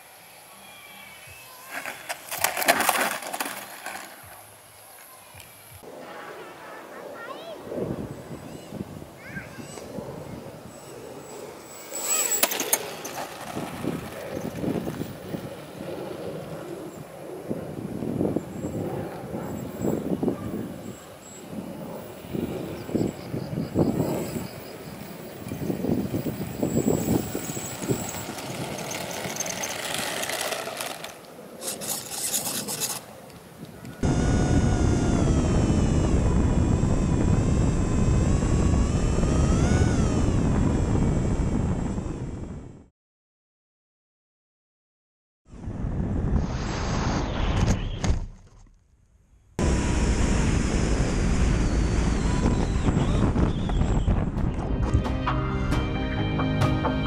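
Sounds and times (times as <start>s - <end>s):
wheels scraping on asphalt: 1.2s - 5.6s, 10.7s - 17.0s, 23.9s - 33.4s
wind on microphone: 7.1s - 30.8s, 31.6s - 42.9s, 45.5s - 48.3s, 49.6s - 55.2s
electric motor and propeller: 7.6s - 42.9s, 49.6s - 54.6s.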